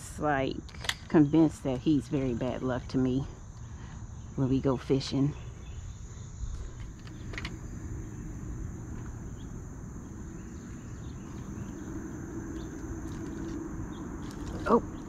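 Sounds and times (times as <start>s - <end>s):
distant road traffic: 0.0s - 15.0s
high insect trill: 0.0s - 15.0s
low hum: 5.3s - 15.0s
wind rumble: 5.3s - 15.0s.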